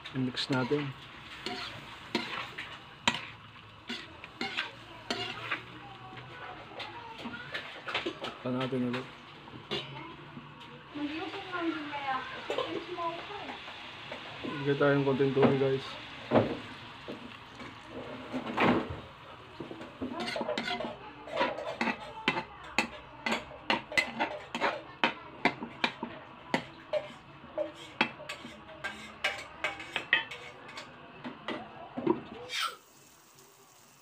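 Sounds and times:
metal spatula scraping a wok: 0:00.3 - 0:05.8, 0:20.1 - 0:22.2, 0:22.8 - 0:24.8, 0:26.9 - 0:30.9, 0:32.5 - 0:32.8.

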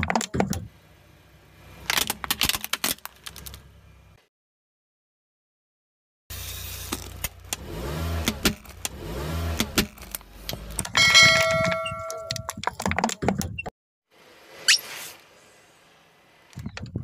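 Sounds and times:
motorcycle engine revving: 0:06.4 - 0:12.1
brief ringing tone: 0:11.0 - 0:12.5.

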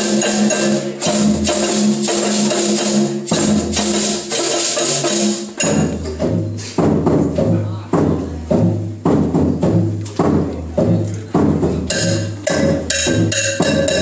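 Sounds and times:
shakers: 0:00.0 - 0:06.0
drums: 0:00.0 - 0:14.0.

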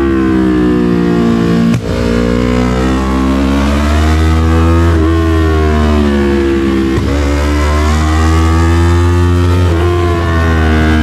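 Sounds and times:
motorcycle engine accelerating: 0:00.0 - 0:11.0.

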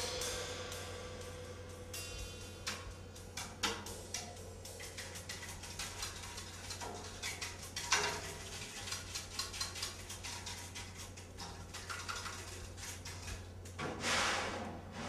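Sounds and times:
hand percussion taps and clicks: 0:02.6 - 0:08.2.

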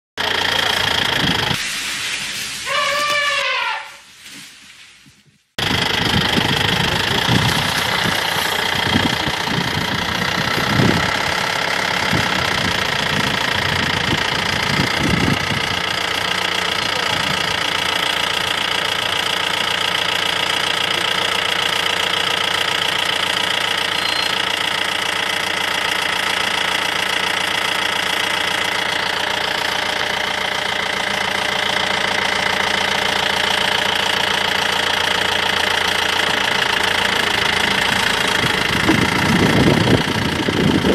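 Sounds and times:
vehicle engine idling: 0:00.2 - 0:03.6, 0:05.6 - 0:40.9.

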